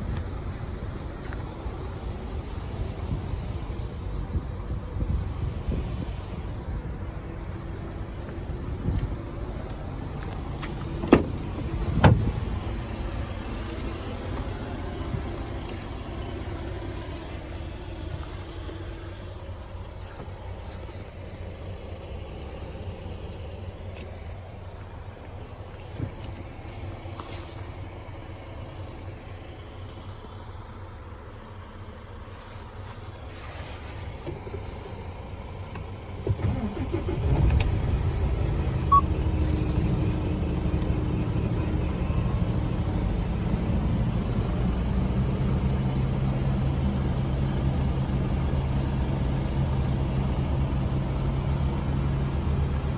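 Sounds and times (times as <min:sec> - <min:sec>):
diesel engine starting and idling: 0:00.0 - 0:52.9.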